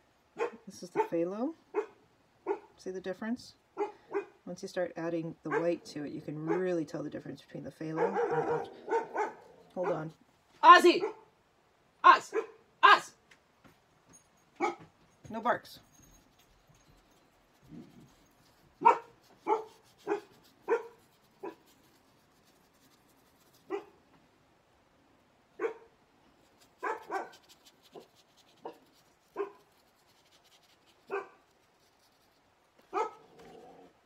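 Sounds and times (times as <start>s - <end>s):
dog barking: 0.4s - 2.7s, 3.8s - 4.4s, 5.5s - 5.8s, 8.0s - 10.1s, 11.0s - 11.3s, 12.2s - 12.6s, 14.6s - 14.8s, 18.8s - 21.6s, 23.7s - 24.0s, 25.6s - 25.9s, 26.8s - 27.5s, 28.6s - 29.6s, 31.1s - 31.4s, 32.9s - 33.3s.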